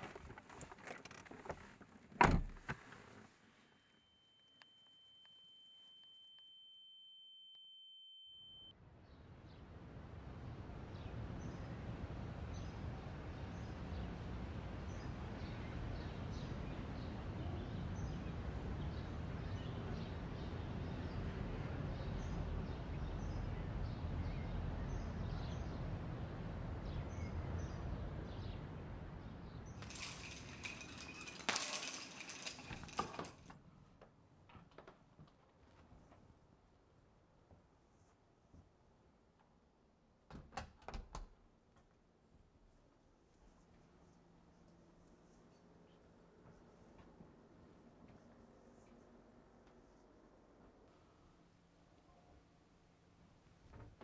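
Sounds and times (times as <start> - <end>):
bright clinking and rattling: 29.8 - 33.5.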